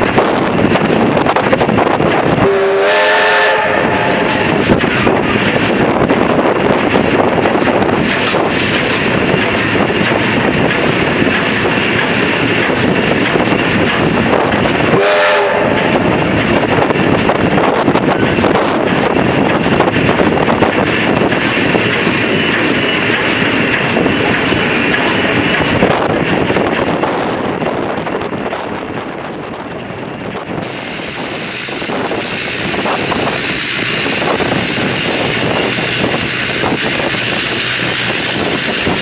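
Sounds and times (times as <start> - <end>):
steam locomotive running: 0.0 - 39.0
steam whistle blast: 2.4 - 4.5, 14.9 - 15.9.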